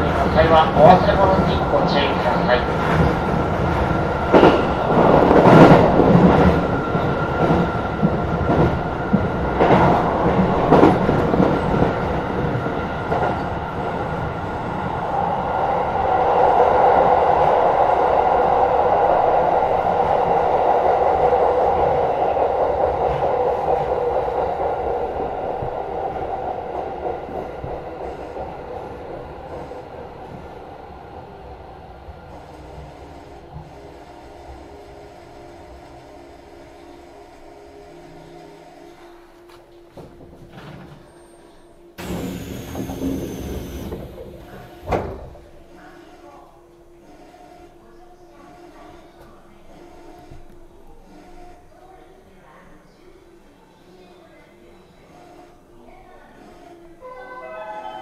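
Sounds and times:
train clacking over rail joints: 0.0 - 12.0, 42.0 - 45.6
train running noise: 0.0 - 53.1.

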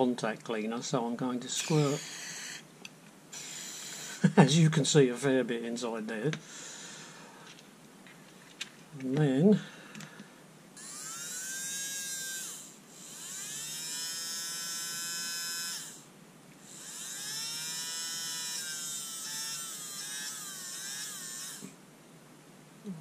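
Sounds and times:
small electric motor whining: 1.5 - 2.7, 3.3 - 4.4, 10.8 - 21.8.

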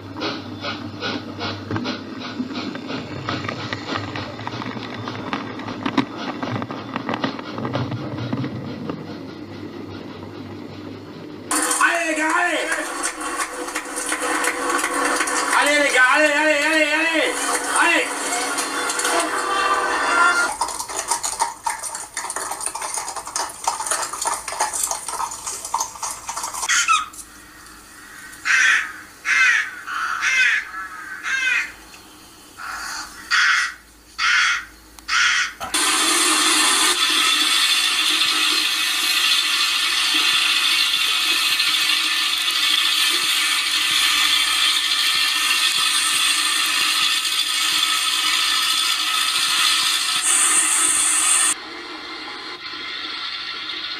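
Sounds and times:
crow cawing: 28.0 - 31.8, 32.6 - 35.6.

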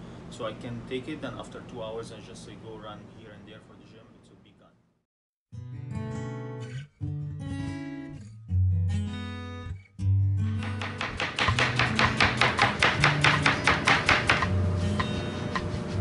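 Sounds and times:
acoustic guitar music: 5.5 - 15.7
knife chopping on cutting board: 10.6 - 16.0.

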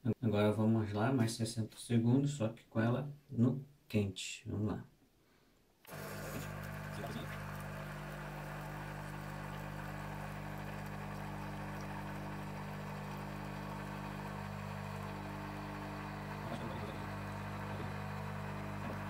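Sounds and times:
coffee machine pump humming: 5.9 - 19.0.

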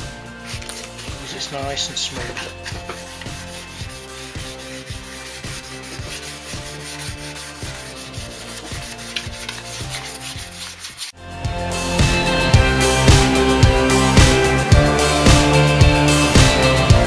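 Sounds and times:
background music with steady beat: 0.0 - 17.0
wet-sanding wheel rubbing: 0.4 - 11.2.

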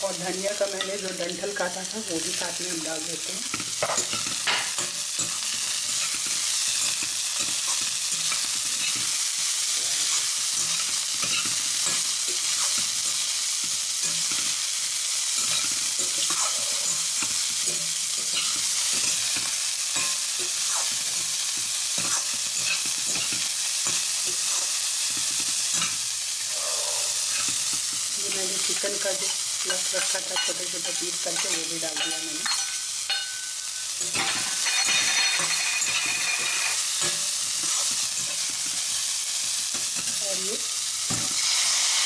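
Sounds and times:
vegetables sizzling in hot oil: 0.0 - 42.0
metal spatula scraping pan: 34.0 - 38.9.

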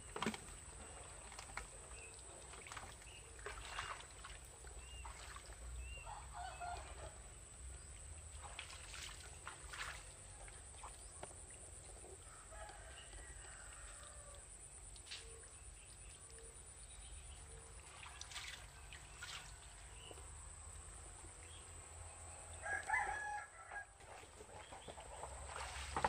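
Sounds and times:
rooster crowing: 22.6 - 24.0.

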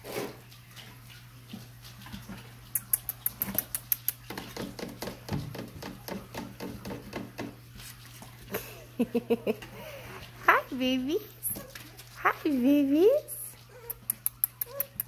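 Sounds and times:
puppies whimpering: 13.6 - 15.0.

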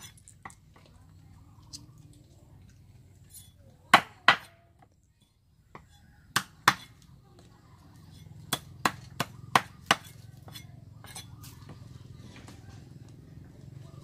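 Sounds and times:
cleaver chopping fish on wood: 3.9 - 4.6, 5.7 - 7.0, 8.4 - 11.3.

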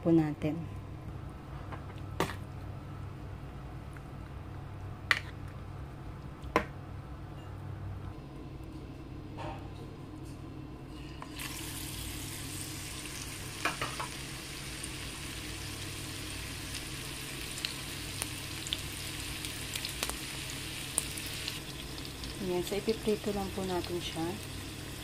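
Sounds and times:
batter sizzling in hot oil: 11.3 - 25.0
oil popping and crackling: 17.4 - 25.0.

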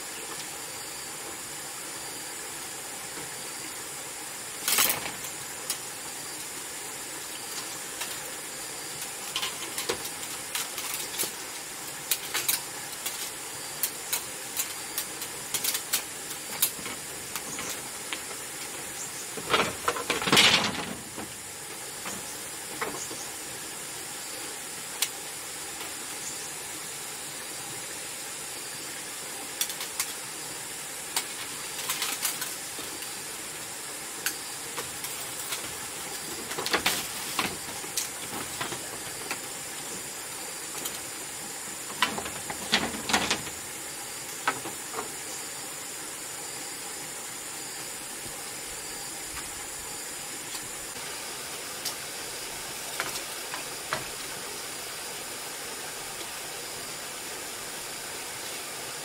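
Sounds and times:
steady high hiss: 0.0 - 59.0
bamboo clicks and knocks: 34.2 - 40.0, 41.8 - 43.7, 52.9 - 54.3.

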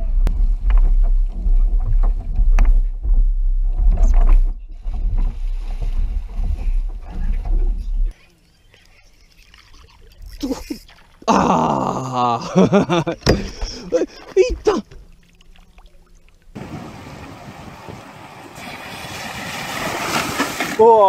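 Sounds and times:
jet ski engine rumble: 0.0 - 21.0
hull slamming waves: 16.5 - 21.0.

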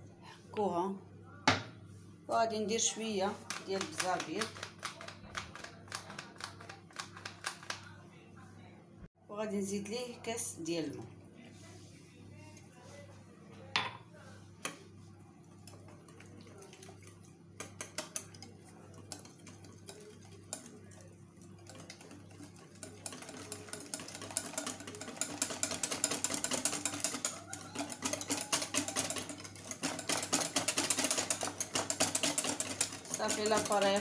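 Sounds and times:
whisk ticking against glass bowl: 3.4 - 7.8, 15.6 - 34.0.

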